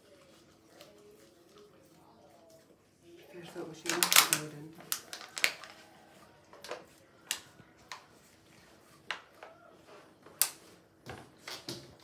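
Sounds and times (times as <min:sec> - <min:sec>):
plastic pot clicking and crackling: 0:03.8 - 0:05.8.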